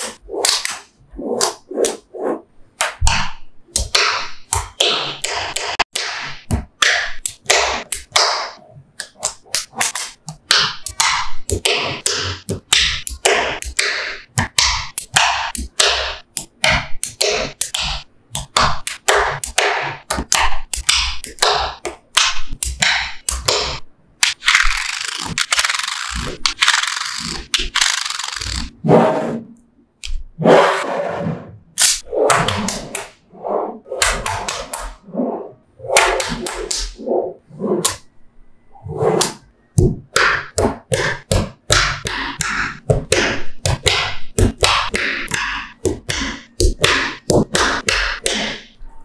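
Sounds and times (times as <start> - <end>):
magnetic balls clicking together: 9.0 - 28.7.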